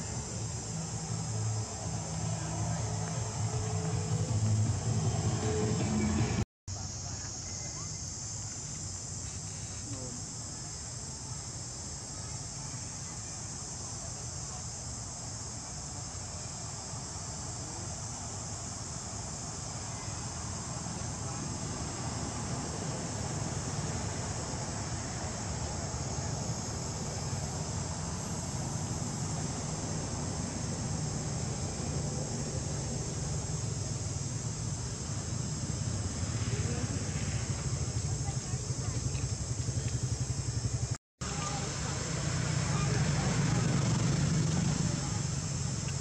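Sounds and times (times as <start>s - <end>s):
high-pitched insect chorus: 0.0s - 46.0s
low rumble: 1.0s - 6.4s.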